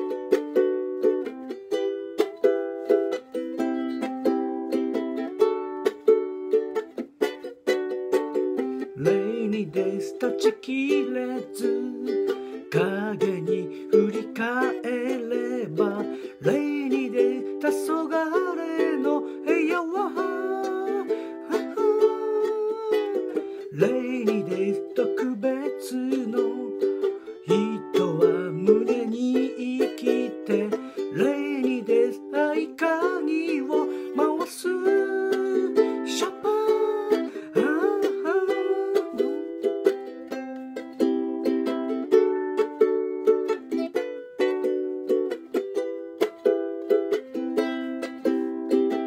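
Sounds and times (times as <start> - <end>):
ukulele strumming: 0.0 - 49.0
person singing: 8.1 - 45.6.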